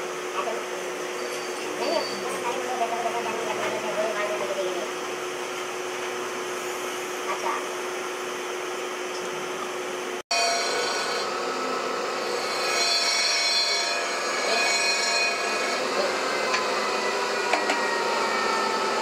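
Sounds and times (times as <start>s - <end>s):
steady ringing tones: 0.0s - 7.2s, 10.3s - 19.0s
grinding machine grinding metal: 10.3s - 19.0s.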